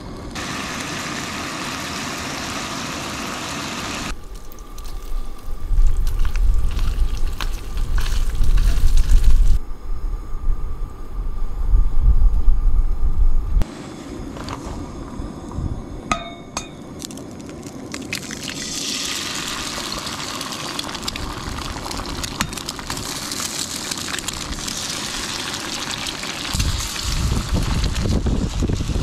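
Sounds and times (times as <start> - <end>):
sharp ringing clinks: 16.1 - 16.8
eggs sizzling in a skillet: 18.0 - 29.0.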